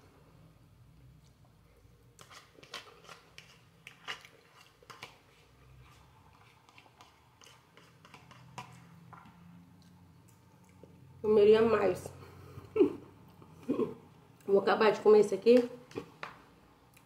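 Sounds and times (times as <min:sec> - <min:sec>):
person chewing noodles: 0:02.1 - 0:09.0.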